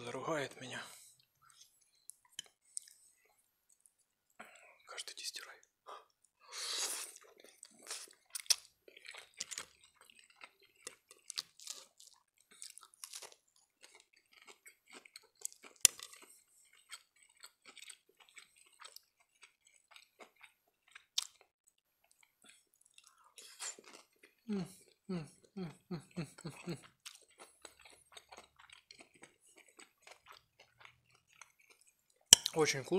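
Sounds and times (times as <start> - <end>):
man chewing food: 1.1 - 4.7, 6.0 - 32.6.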